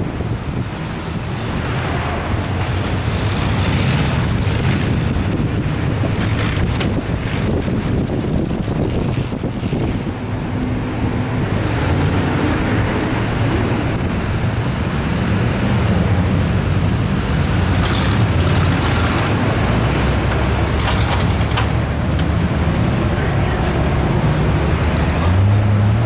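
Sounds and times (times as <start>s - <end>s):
vehicle engine running: 16.6s - 25.3s.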